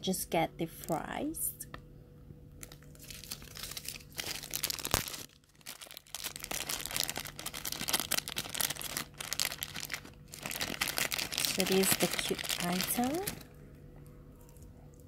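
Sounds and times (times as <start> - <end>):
plastic bag crinkling: 2.6 - 13.6.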